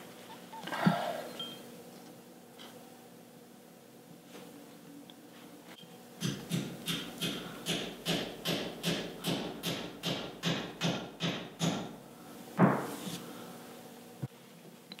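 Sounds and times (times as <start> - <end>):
hammer tapping metal: 6.2 - 11.9.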